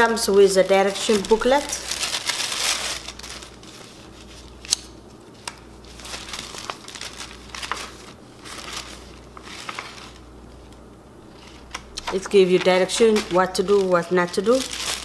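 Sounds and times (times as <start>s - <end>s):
paper rustling: 0.3s - 4.8s, 5.4s - 10.7s, 11.3s - 15.0s.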